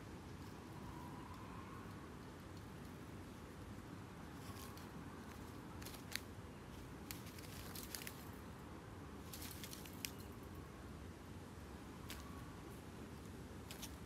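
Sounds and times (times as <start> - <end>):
low steady hum: 0.0 - 14.0
faint clicks and crackles: 9.3 - 10.4.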